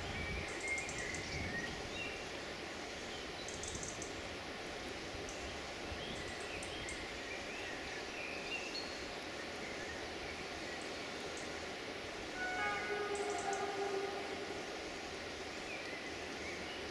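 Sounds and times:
steady background hiss: 0.0s - 16.9s.

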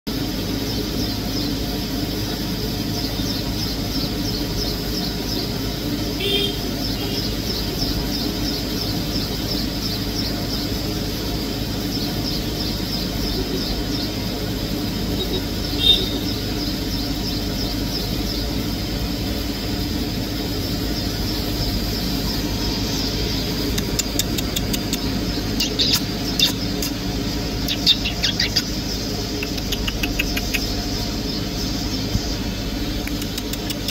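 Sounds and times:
low hum: 12.2s - 33.9s
high-pitched pulsing trill: 15.1s - 33.9s
sharp clicks: 23.6s - 27.0s, 29.4s - 30.8s, 33.0s - 33.9s.

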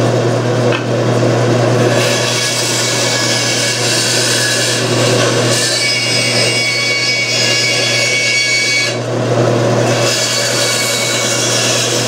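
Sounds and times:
bandsaw motor humming: 0.0s - 12.0s
saw blade cutting wood: 1.8s - 9.1s, 9.8s - 12.0s.

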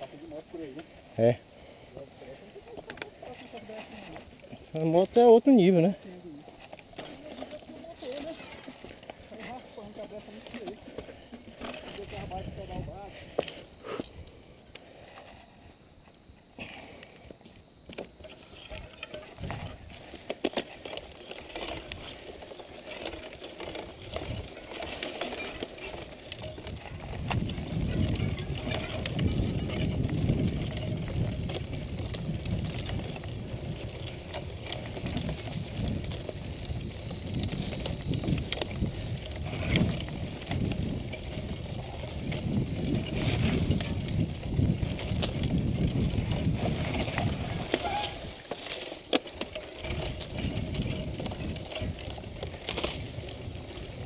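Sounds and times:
bike tyres on rough dirt: 0.0s - 54.0s
sharp bike clicks: 17.9s - 54.0s.

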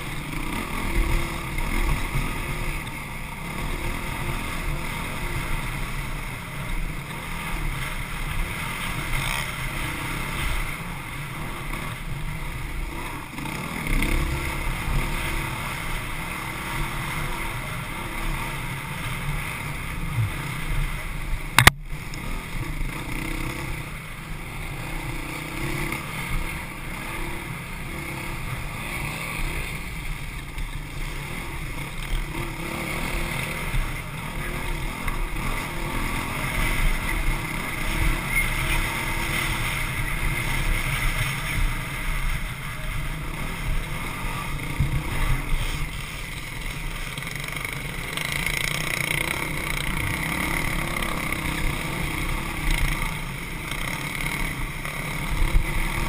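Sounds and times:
sharp knock: 21.6s - 21.8s.

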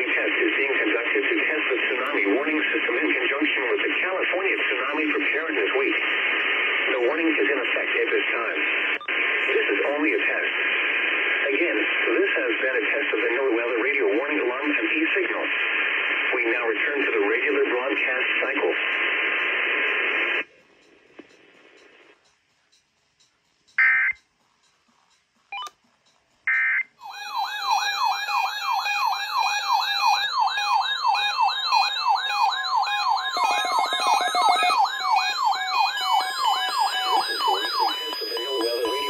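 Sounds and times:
radio hiss: 0.0s - 22.2s, 32.0s - 39.0s
steady beeps: 20.8s - 39.0s
electronic alarm warbles: 23.8s - 24.2s, 26.5s - 39.0s.

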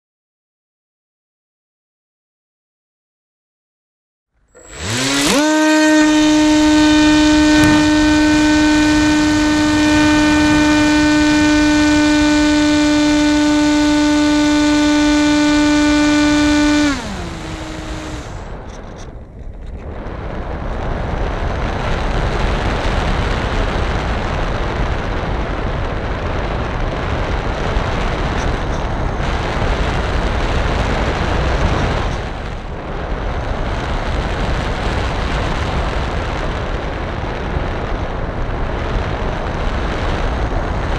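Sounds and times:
model airplane motor whine: 4.6s - 19.8s
wind rushing on microphone: 4.6s - 40.9s.

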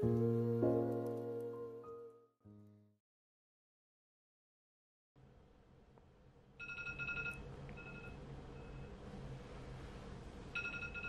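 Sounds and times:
phone ringtone beeps: 6.6s - 8.2s, 10.6s - 11.0s.

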